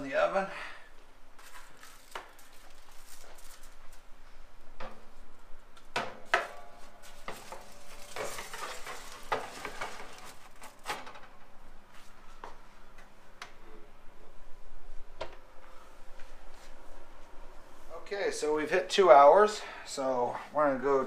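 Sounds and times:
foil crinkling: 1.4 - 4.0, 7.1 - 10.9
baking sheet scraping on oven rack: 7.0 - 10.6.

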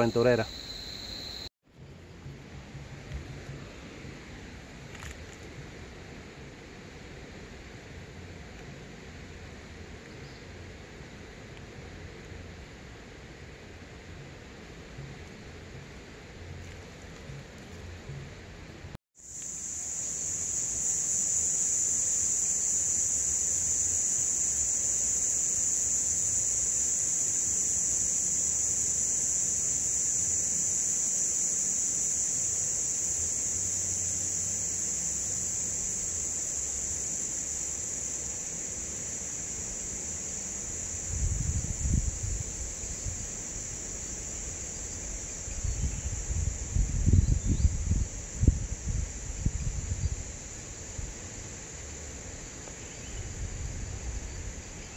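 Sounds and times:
insects shrill drone: 0.0 - 1.5, 19.2 - 54.9.

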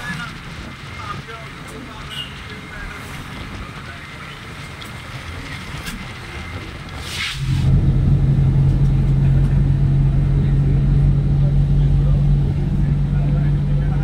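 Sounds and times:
car road noise on wet road: 0.0 - 14.0
low rumble with constant hum: 2.7 - 14.0
short hiss: 7.0 - 7.6.

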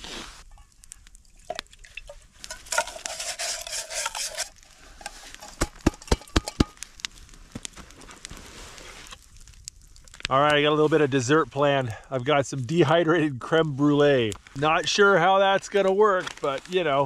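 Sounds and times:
spoon scraping and stirring pot: 0.2 - 6.7.

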